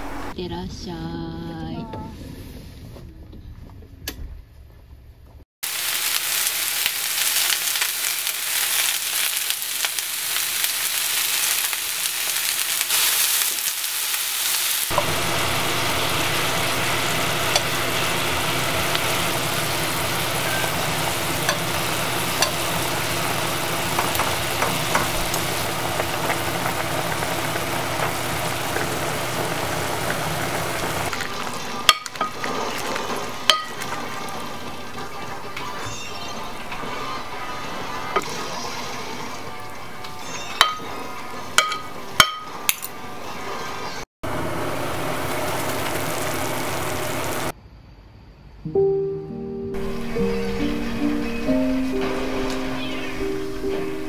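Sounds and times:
chicken wings sizzling in a pan: 5.6s - 42.9s, 44.3s - 47.5s.

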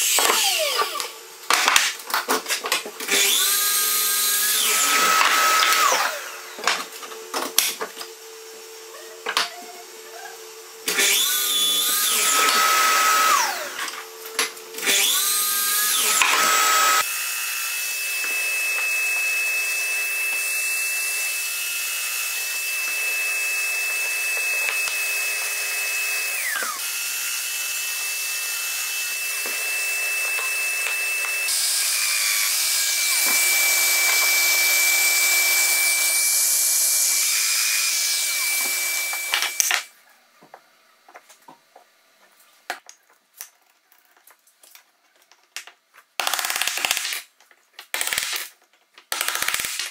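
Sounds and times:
mitre saw whining: 0.0s - 1.2s, 3.1s - 6.8s, 10.0s - 14.2s, 14.8s - 39.9s
joiner machine whining: 14.8s - 17.1s, 17.9s - 39.9s.

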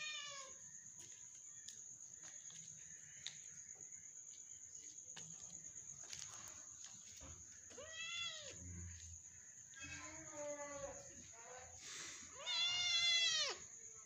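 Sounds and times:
cat meowing: 0.0s - 0.6s, 7.8s - 8.6s, 12.4s - 13.6s
high-pitched insect trill: 0.0s - 14.0s.

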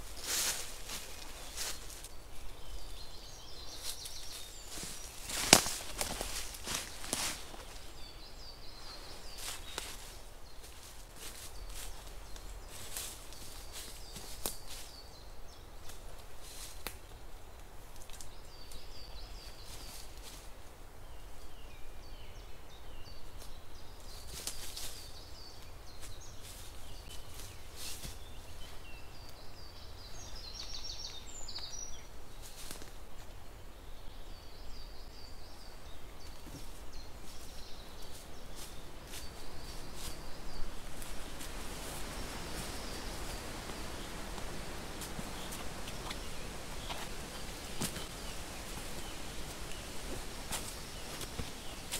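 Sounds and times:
footsteps in dry leaves: 0.0s - 2.2s, 3.6s - 8.2s, 8.8s - 15.0s, 36.4s - 51.9s
small birds singing: 0.0s - 51.9s.

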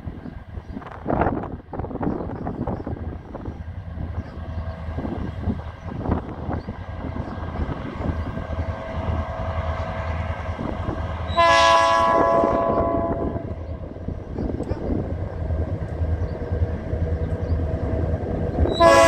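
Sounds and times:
locomotive engine rumble: 0.0s - 19.0s
train horn blast: 11.2s - 13.6s, 18.7s - 19.0s.

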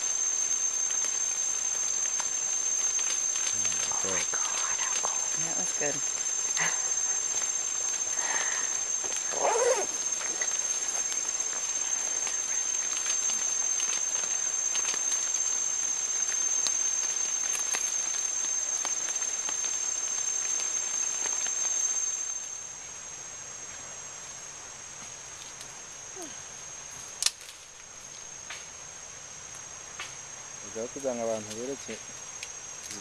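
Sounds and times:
high-pitched insect drone: 0.0s - 28.4s, 30.1s - 33.0s
even hiss: 0.0s - 33.0s
soft animal call: 9.3s - 10.5s.

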